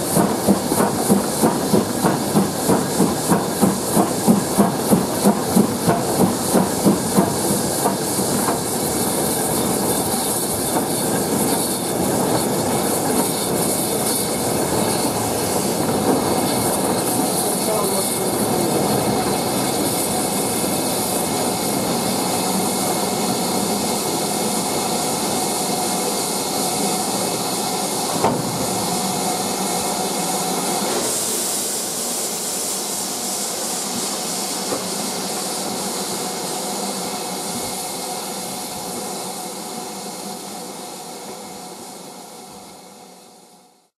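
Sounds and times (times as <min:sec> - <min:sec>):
steam locomotive rumble: 0:00.0 - 0:43.8
steam hiss: 0:00.0 - 0:43.9.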